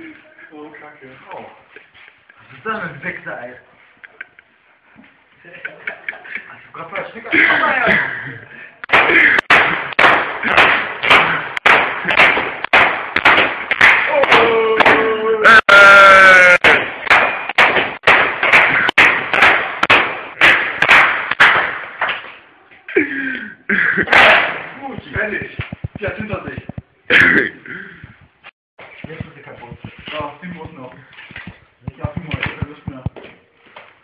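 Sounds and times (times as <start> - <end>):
long high yell: 14.1 - 16.6.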